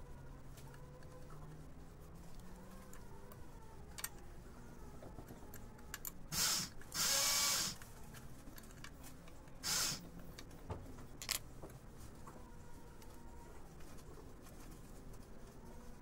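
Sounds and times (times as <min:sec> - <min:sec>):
power tool buzzing bursts: 0:06.3 - 0:07.8, 0:09.6 - 0:10.0.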